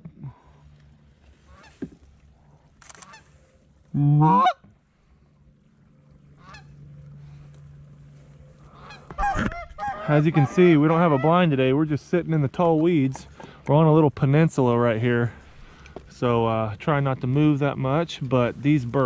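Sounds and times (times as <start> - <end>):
goose honking: 1.4 - 1.8, 3.0 - 3.3, 4.0 - 4.7, 6.3 - 7.4, 8.6 - 11.8.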